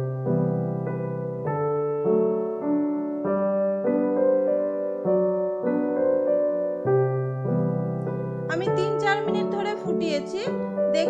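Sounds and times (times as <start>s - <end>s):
gentle keyboard melody: 0.0s - 11.0s.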